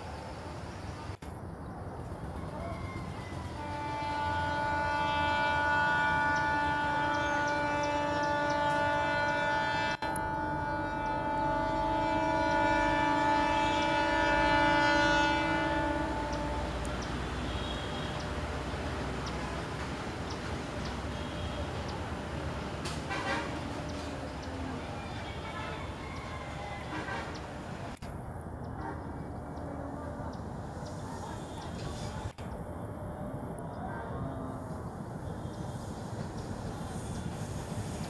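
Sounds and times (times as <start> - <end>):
locomotive air horn blast: 3.5 - 18.2, 21.0 - 27.8, 28.8 - 29.3, 36.8 - 38.0.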